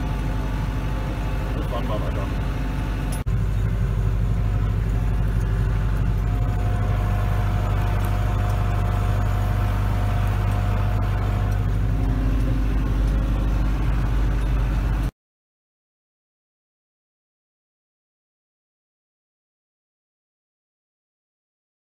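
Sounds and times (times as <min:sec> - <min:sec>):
thin whine: 0:00.0 - 0:15.1
tractor diesel engine running: 0:00.0 - 0:15.1.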